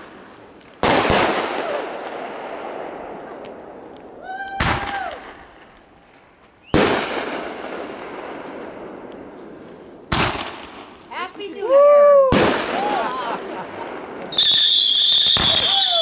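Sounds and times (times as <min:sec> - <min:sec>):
faint firework crackles: 0:00.0 - 0:16.0
firework bangs with echo: 0:00.8 - 0:03.8, 0:06.7 - 0:09.1, 0:10.1 - 0:11.0, 0:12.3 - 0:16.0.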